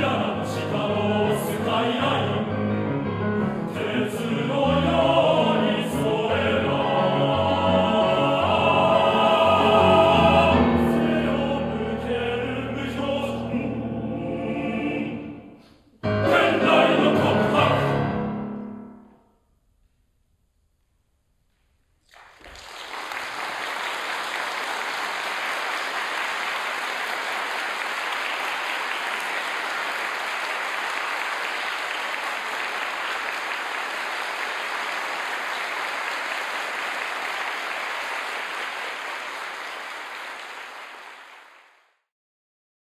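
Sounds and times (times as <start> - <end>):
audience applauding: 22.1 - 42.0.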